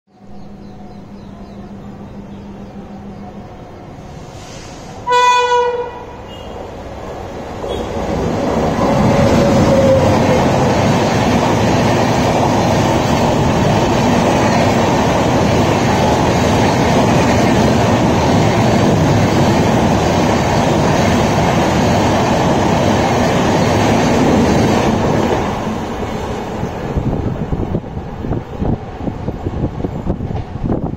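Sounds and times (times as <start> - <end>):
train passing on rails: 0.1 - 30.9.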